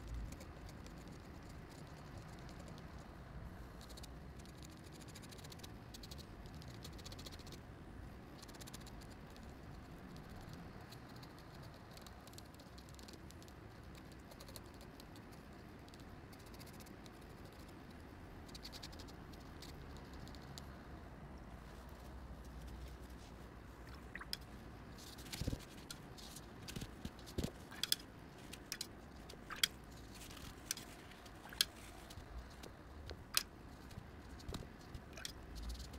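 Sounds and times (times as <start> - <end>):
pen nib scratching on paper: 0.0 - 3.0, 3.8 - 7.6, 8.4 - 20.6
faint low hum: 0.0 - 35.9.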